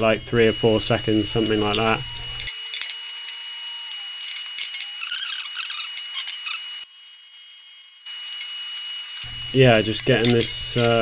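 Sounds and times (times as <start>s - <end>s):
welding arc buzz: 0.0s - 11.0s
scratchy rubbing of metal pieces: 4.1s - 6.8s.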